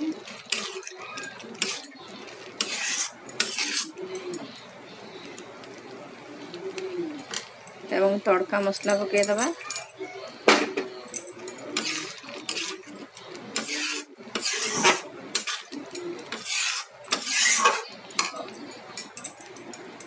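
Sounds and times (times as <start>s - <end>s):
metal spatula scraping pot: 0.0s - 4.7s, 11.3s - 18.9s.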